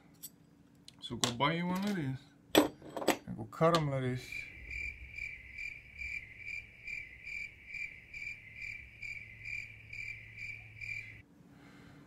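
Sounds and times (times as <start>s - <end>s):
faint low hum: 0.0s - 12.0s
cricket chirping: 4.0s - 11.2s.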